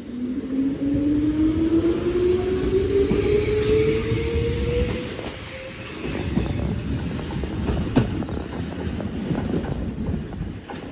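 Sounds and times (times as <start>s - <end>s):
electric train motor whine: 0.0s - 7.2s
train wheels rumbling: 0.0s - 10.9s.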